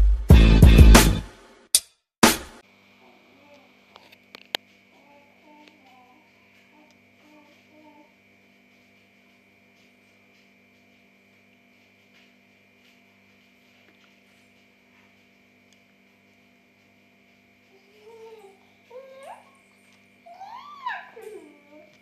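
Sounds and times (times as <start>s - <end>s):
faint electrical hum: 2.6s - 22.0s
soft rustles: 5.6s - 18.9s.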